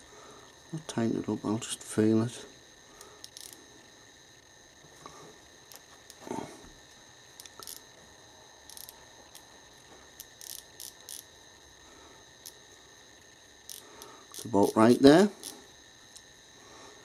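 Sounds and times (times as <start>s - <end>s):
micrometer ratchet clicking: 3.0s - 3.6s, 7.3s - 7.9s, 8.6s - 9.5s, 10.1s - 11.3s, 12.4s - 12.6s, 13.6s - 16.3s.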